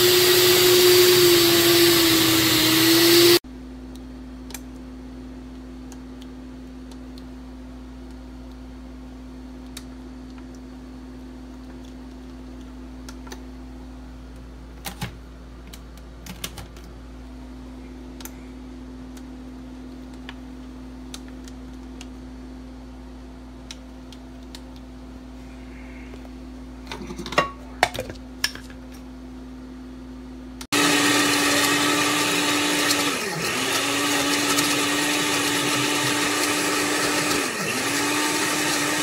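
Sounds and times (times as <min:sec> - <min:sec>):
steady low hum: 0:03.5 - 0:30.7.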